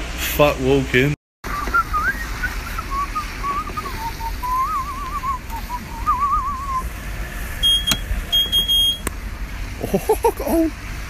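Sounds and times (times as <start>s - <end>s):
low steady rumble: 0.0s - 11.0s
person whistling a tune: 1.5s - 6.8s.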